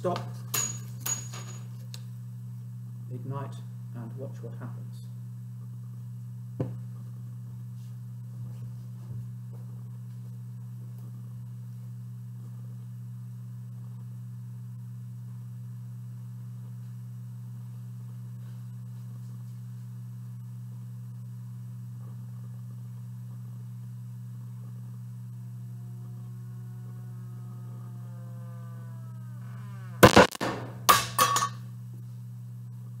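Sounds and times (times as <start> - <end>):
rising whistle of burning gas: 25.7 - 30.6
sharp loud explosion bang: 30.0 - 31.2.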